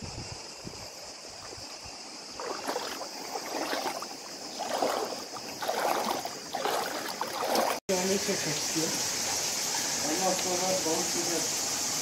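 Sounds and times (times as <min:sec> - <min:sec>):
flowing water rushing: 0:01.0 - 0:12.0
footsteps splashing in stream: 0:01.2 - 0:07.9.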